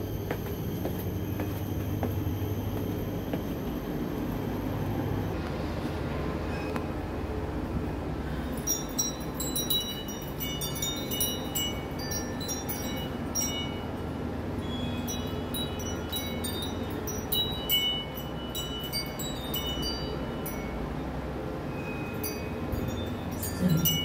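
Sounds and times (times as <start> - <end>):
steady low hum: 0.0 - 24.0
metal wind chimes tinkling: 8.4 - 21.0, 21.7 - 24.0.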